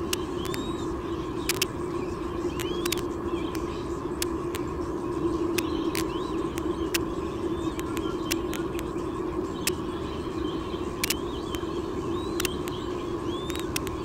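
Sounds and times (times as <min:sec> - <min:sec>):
sharp clicks: 0:00.0 - 0:00.7, 0:01.4 - 0:01.8, 0:02.5 - 0:04.7, 0:05.5 - 0:07.0, 0:07.7 - 0:08.9, 0:11.0 - 0:11.7, 0:12.4 - 0:12.8, 0:13.4 - 0:14.0
faint high bird chirps: 0:00.0 - 0:14.0
faint rumble: 0:00.0 - 0:14.0
steady hum: 0:00.0 - 0:14.0.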